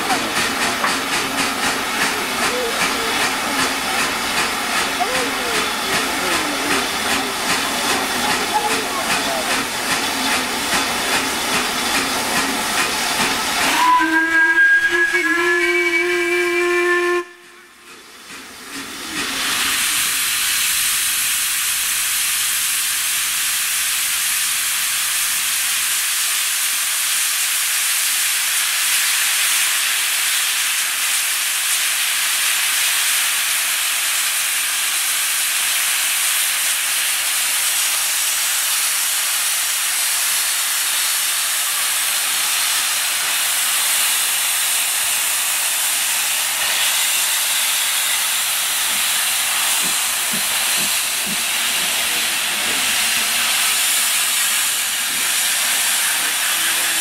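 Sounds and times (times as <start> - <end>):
steam hissing: 0.0 - 57.0
deep steam whistle blast: 13.2 - 17.9.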